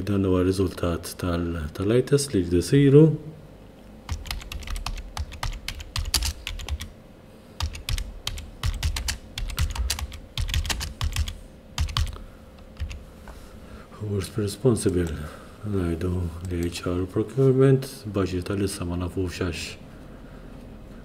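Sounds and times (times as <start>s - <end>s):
keyboard typing: 4.1s - 6.9s, 7.6s - 13.0s.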